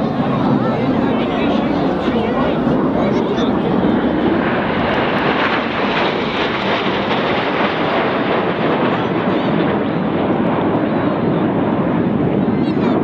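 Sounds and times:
jets flying past: 0.0 - 13.0.

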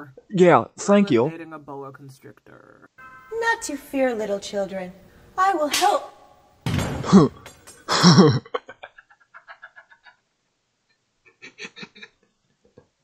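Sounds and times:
person laughing: 7.0 - 10.2, 11.3 - 12.4.

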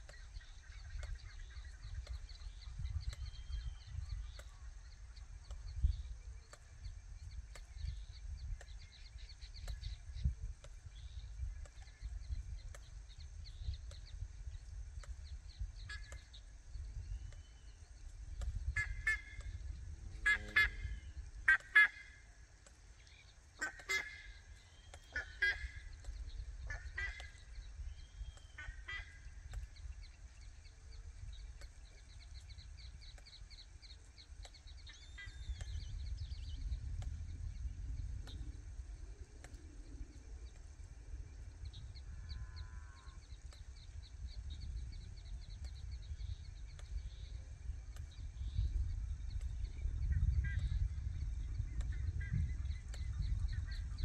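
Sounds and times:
birds twittering trills: 0.0 - 54.0
wind rumbling on microphone: 0.0 - 54.0
birds harsh calls: 17.3 - 36.6.

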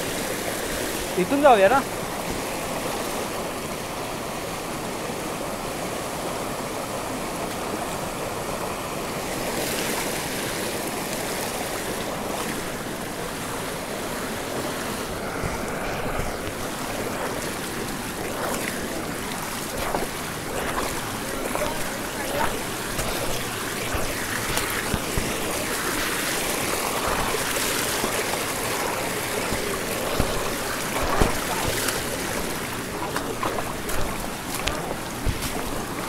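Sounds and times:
stream rushing over rocks: 0.0 - 36.0
feet splashing in water: 15.4 - 36.0.

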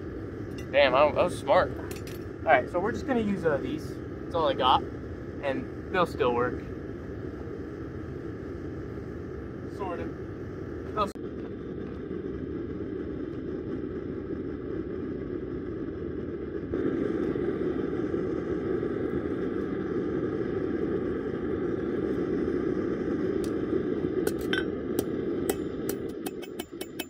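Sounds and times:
gas forge burner rushing: 0.0 - 15.0
hammer striking anvil: 25.5 - 27.0.

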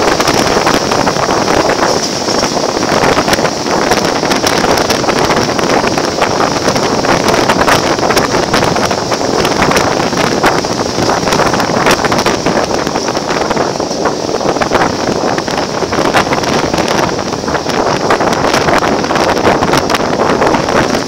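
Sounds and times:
train running roar: 0.0 - 21.0
wind rushing over microphone: 0.0 - 21.0.

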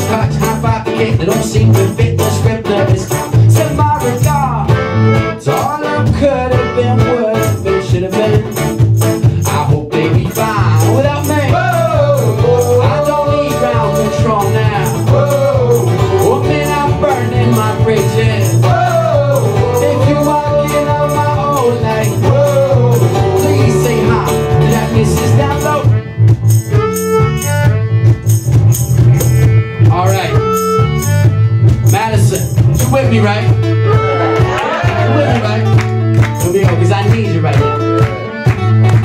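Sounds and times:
cajon and shaker percussion: 0.0 - 4.4, 7.4 - 39.0
acoustic guitar: 0.0 - 39.0
electric bass: 0.0 - 39.0
person singing: 5.5 - 8.6, 9.4 - 25.9.

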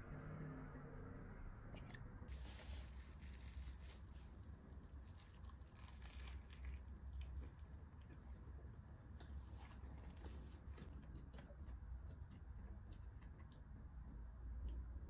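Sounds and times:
low hum: 0.0 - 15.0
plastic wrap crinkling and tearing: 2.3 - 7.7.

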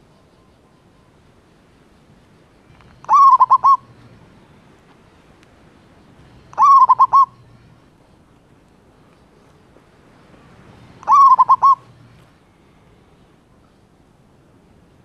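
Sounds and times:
dove cooing: 2.8 - 3.9, 6.4 - 7.6, 11.0 - 12.2.

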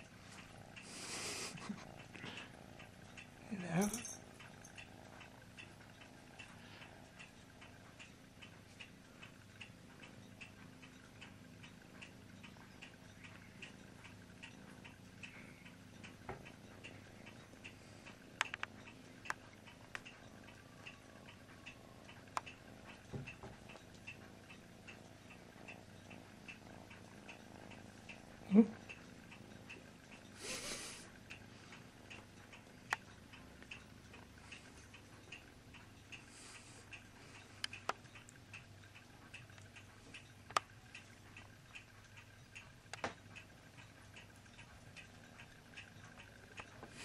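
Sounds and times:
faint regular ticking: 0.0 - 47.0
sharp clicks: 16.0 - 24.6, 37.6 - 47.0.

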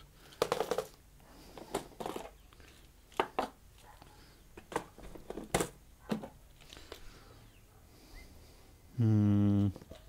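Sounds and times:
small hard objects knocking: 0.2 - 1.0, 1.6 - 3.6, 4.6 - 7.0.

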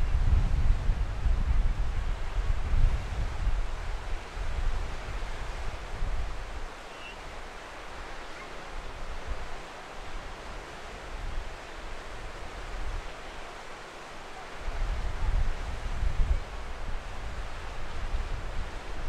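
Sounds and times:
wind buffeting microphone: 0.0 - 6.7, 14.6 - 19.0
small waves washing up beach: 1.7 - 19.0.

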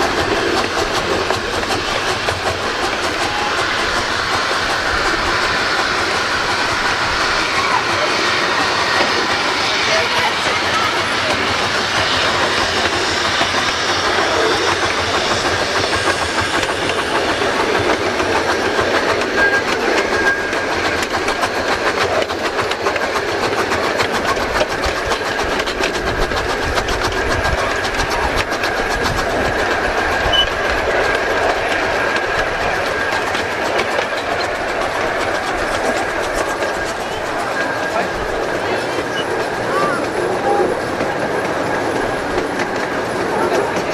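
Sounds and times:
train rolling and rail clatter: 0.0 - 43.9.

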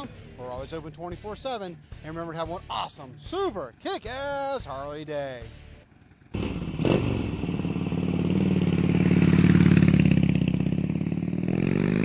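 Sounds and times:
motorcycle engine throbbing: 5.5 - 12.0.

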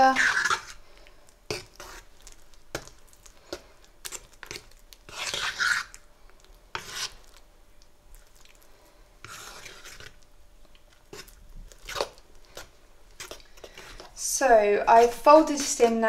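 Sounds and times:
fork scraping ceramic bowl: 0.0 - 0.8, 1.5 - 2.1, 4.1 - 5.9, 6.7 - 7.2, 9.2 - 10.2.

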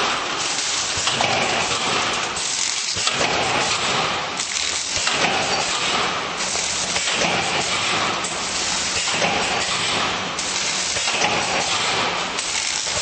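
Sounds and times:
packaging machine rushing noise: 0.0 - 13.0.

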